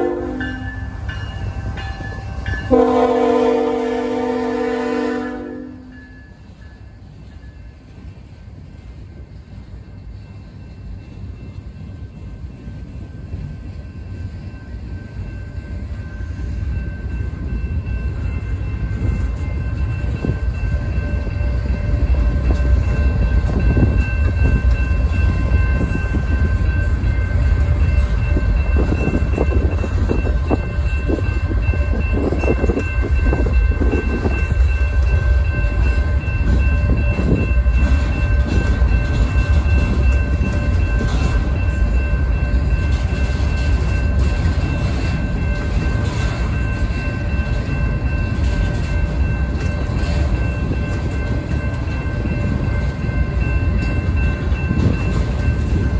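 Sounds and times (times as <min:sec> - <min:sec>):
train wheels rumbling on rail: 0:00.0 - 0:55.9
wheels clacking over rail joints: 0:16.3 - 0:55.9.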